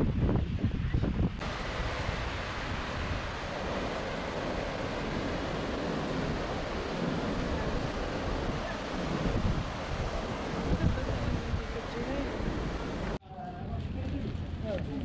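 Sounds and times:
wind rumbling on microphone: 0.0 - 15.0
surf breaking over rocks: 1.4 - 13.2.

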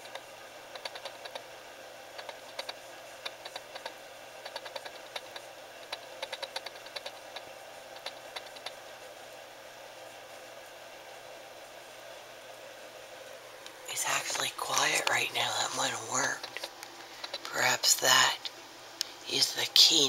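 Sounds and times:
animal scratching and clicking: 0.0 - 1.5, 2.1 - 8.8, 16.4 - 17.5.

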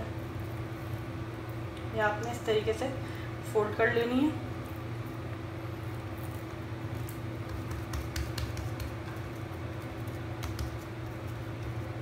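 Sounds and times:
low background hum: 0.0 - 12.0
hands patting pastry dough: 6.0 - 12.0.

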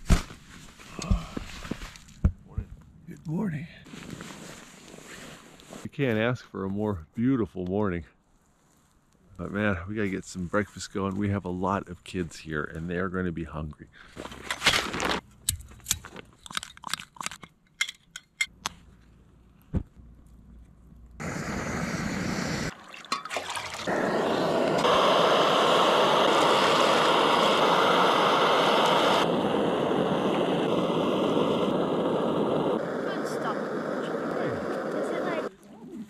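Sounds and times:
camp stove rushing: 14.2 - 18.0, 22.0 - 35.2.

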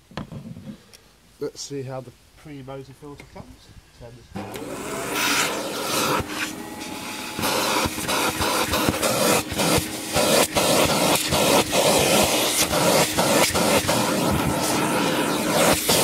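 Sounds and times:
vacuum cleaner suction hiss: 4.4 - 16.0.

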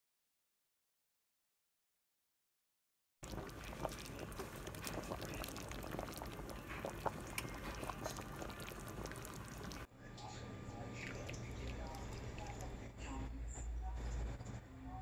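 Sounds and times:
broth bubbling at a boil: 3.2 - 9.9, 11.0 - 12.8.

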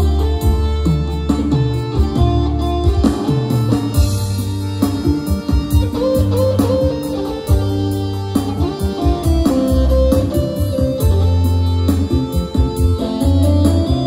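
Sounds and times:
electronic keyboard music: 0.0 - 14.0
heavy bass line: 0.0 - 14.0
steady drum beat: 0.0 - 14.0.

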